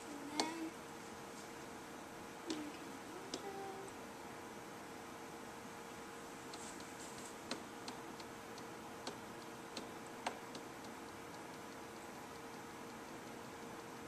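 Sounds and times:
faint steady hum: 0.0 - 14.0
fingertip tapping a touch screen: 6.5 - 13.4.

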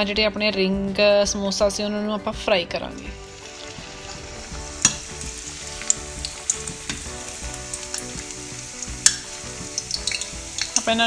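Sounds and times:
deep-frying sizzle in hot oil: 3.0 - 11.0.

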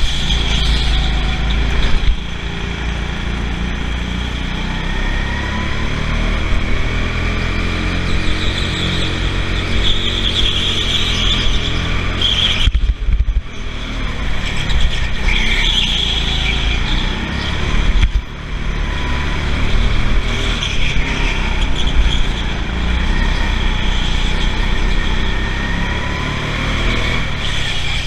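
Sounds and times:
high tyre squeal: 0.0 - 2.0, 7.2 - 12.9, 13.5 - 18.0, 18.6 - 28.0
go-kart motor and rumbling chassis: 0.0 - 28.0.

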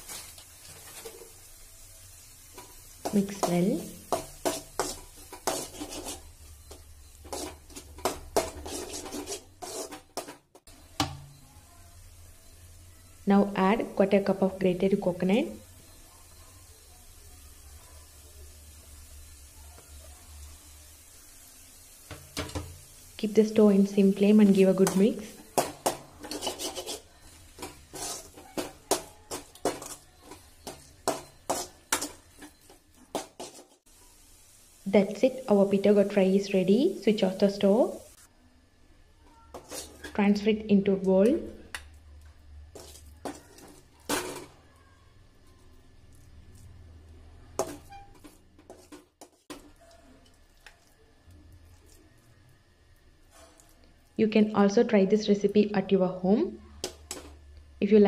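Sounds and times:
steel spoon scraping a pan: 2.1 - 11.4, 22.0 - 33.9, 39.2 - 40.5, 42.7 - 44.7, 47.4 - 50.3, 53.2 - 53.8, 56.8 - 57.4.

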